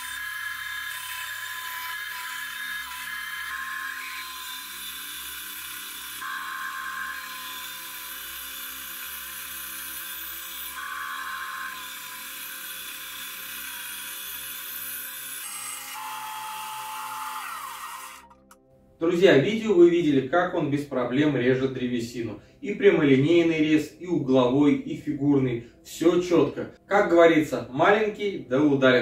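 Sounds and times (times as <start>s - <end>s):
bandsaw cutting wood: 0.0s - 18.6s.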